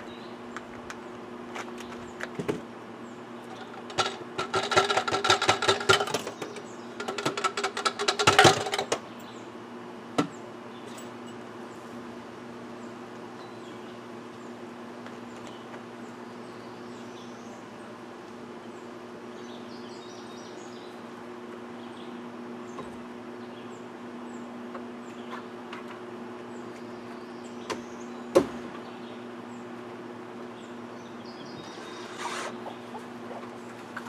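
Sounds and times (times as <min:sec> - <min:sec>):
small birds chirping: 0:00.0 - 0:03.9, 0:06.2 - 0:07.1, 0:09.0 - 0:34.0
brief scrape: 0:31.7 - 0:32.6.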